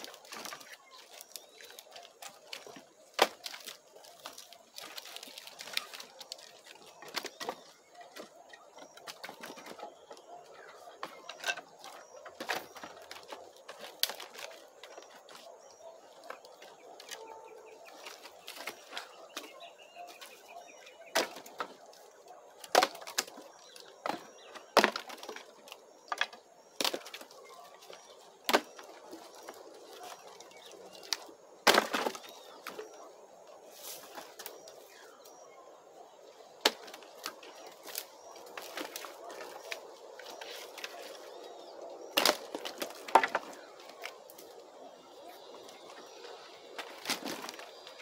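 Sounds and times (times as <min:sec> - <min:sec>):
wood cracking and knocking: 0:00.0 - 0:15.4, 0:21.1 - 0:22.0, 0:22.6 - 0:33.0, 0:36.6 - 0:41.2, 0:42.1 - 0:44.2, 0:46.7 - 0:48.0.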